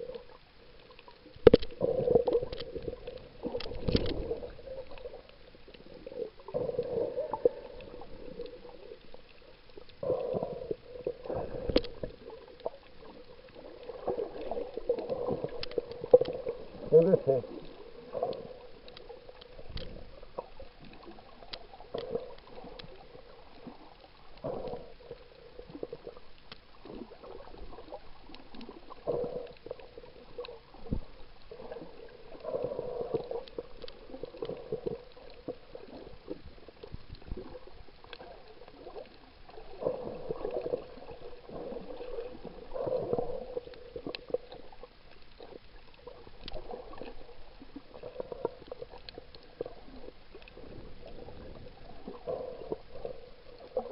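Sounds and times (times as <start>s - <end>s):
underwater sloshing and gurgling: 0.0s - 53.9s
small clicks: 0.8s - 5.4s, 11.7s - 12.7s.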